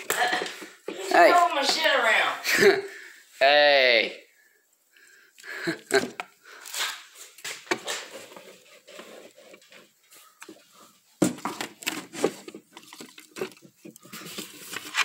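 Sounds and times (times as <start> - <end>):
objects rustling and knocking: 0.0 - 2.3, 5.6 - 15.0.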